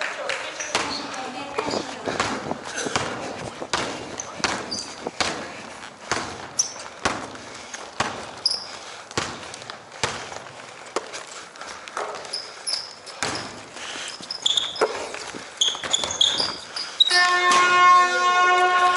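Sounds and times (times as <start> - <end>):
sneaker squeaks: 0.5 - 9.5, 12.0 - 18.1
basketball bouncing on wooden floor: 13.1 - 13.7, 14.5 - 16.6.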